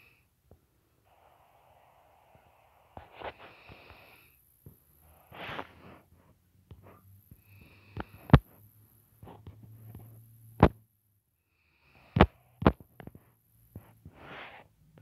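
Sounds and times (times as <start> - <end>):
fingertip taps on touchscreen: 12.2 - 13.9.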